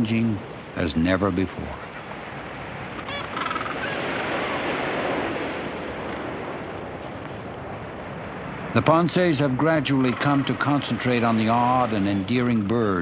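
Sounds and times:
bird call: 0:02.9 - 0:05.0
sea wave washing in: 0:03.8 - 0:07.2, 0:07.8 - 0:13.0.

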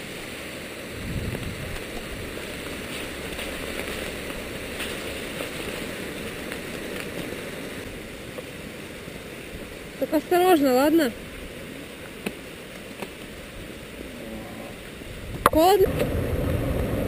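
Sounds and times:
rain falling on wet road: 0:00.0 - 0:17.0
raindrop ticks: 0:01.3 - 0:07.4.

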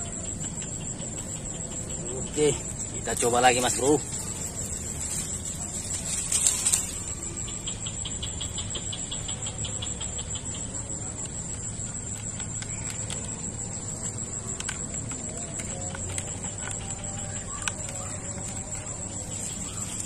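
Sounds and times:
insects droning: 0:00.0 - 0:20.0
quick regular chirps: 0:00.0 - 0:20.0
fishing pole rustle: 0:04.4 - 0:07.2.

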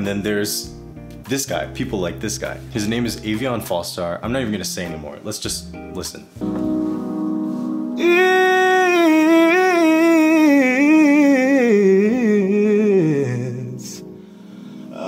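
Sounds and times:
man singing a vocal run: 0:08.0 - 0:14.1.

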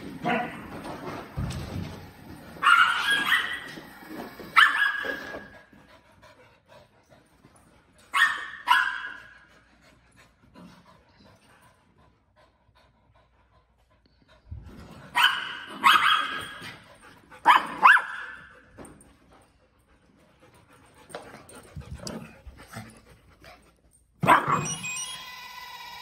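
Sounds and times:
dogs barking: 0:08.2 - 0:09.4, 0:15.2 - 0:16.6, 0:17.4 - 0:18.6.

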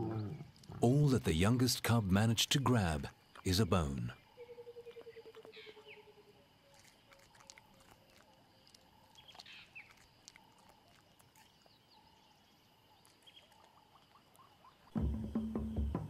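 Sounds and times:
lion cub gnawing bone: 0:06.6 - 0:15.0.

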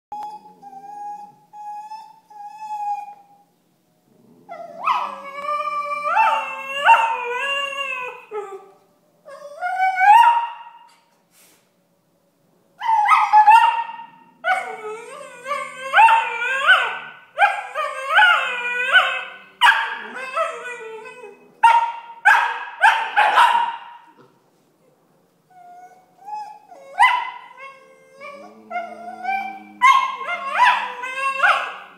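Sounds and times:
puppy whining and howling: 0:00.1 - 0:03.5, 0:04.5 - 0:10.9, 0:12.8 - 0:21.6, 0:25.5 - 0:31.9
puppy yipping: 0:29.8 - 0:31.8.

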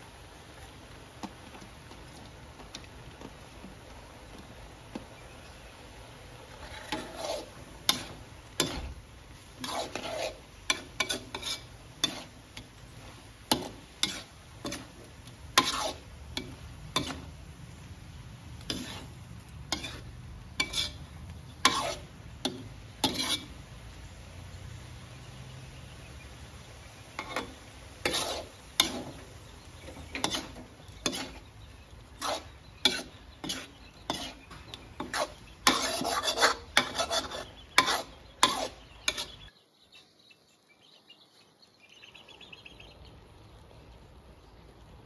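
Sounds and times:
metal spatula scraping a wok: 0:06.4 - 0:17.4, 0:18.6 - 0:23.7, 0:27.2 - 0:39.5.

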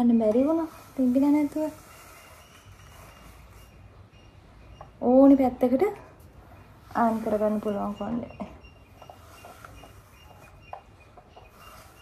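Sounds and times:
hair sliding through straightener: 0:00.0 - 0:03.8
faint high chirps: 0:01.8 - 0:05.4.

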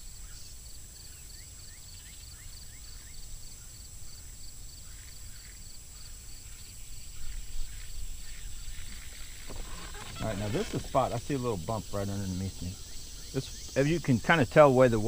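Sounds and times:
insect high hum: 0:00.0 - 0:15.0
bird chirping: 0:04.8 - 0:15.0
pulsing insect: 0:07.0 - 0:15.0.

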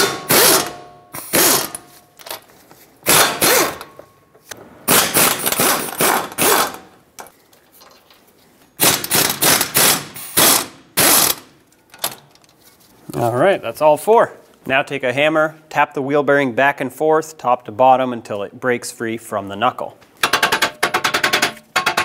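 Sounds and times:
impact gun hammering bolts: 0:00.0 - 0:01.8, 0:03.0 - 0:04.0, 0:08.8 - 0:12.2, 0:20.2 - 0:22.0.

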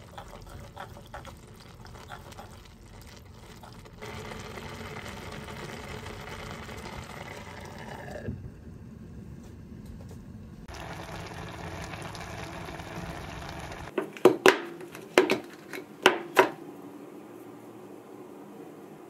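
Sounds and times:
pot simmering with hiss: 0:00.0 - 0:09.8, 0:10.4 - 0:13.9.

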